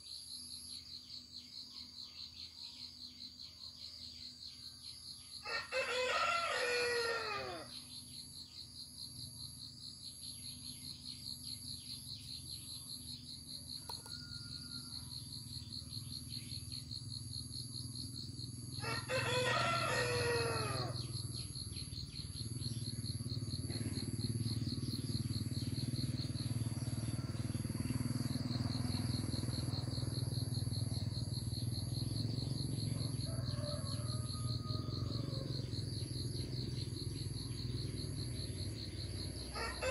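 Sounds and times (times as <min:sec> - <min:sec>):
rooster crowing: 0:05.4 - 0:07.7, 0:13.8 - 0:15.2, 0:18.8 - 0:21.1, 0:32.9 - 0:35.8, 0:39.4 - 0:39.9
insect trilling: 0:10.3 - 0:39.9.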